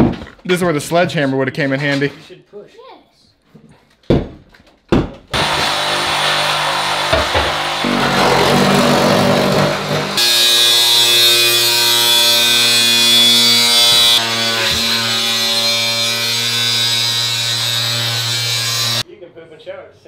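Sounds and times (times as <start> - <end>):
angle grinder whining: 5.4 - 19.0.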